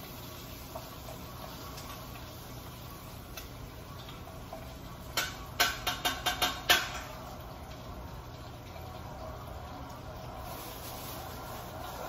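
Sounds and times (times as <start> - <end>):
utensils clinking on metal pot: 5.1 - 7.2.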